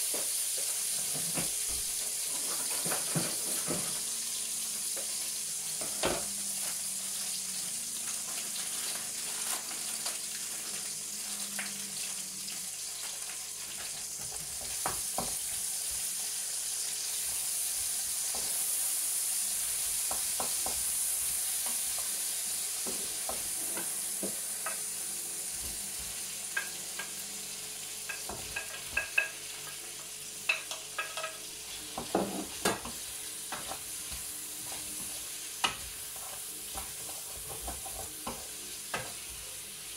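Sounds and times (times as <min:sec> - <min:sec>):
food sizzling in a frying pan: 0:00.0 - 0:39.9
utensil clinking against pan: 0:30.5 - 0:31.4.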